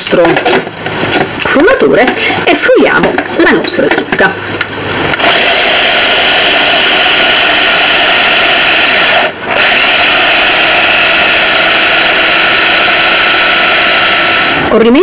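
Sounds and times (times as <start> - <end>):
electric chopper motor running: 5.1 - 14.8.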